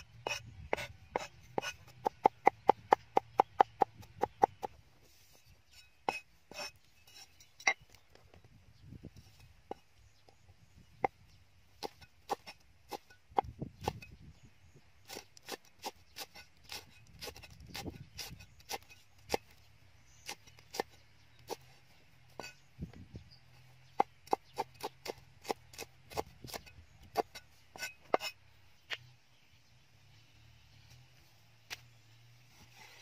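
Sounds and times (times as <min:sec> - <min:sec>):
cleaver chopping on wooden board: 0:00.3 - 0:04.7.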